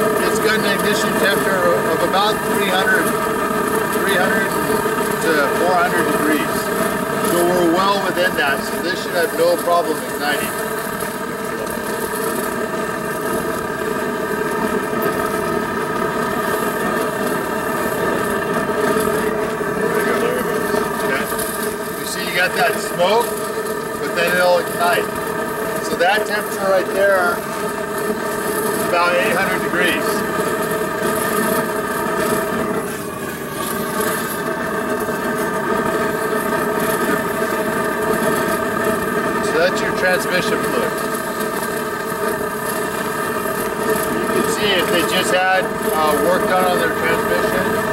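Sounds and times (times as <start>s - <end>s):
engine-like droning hum: 0.0s - 47.9s.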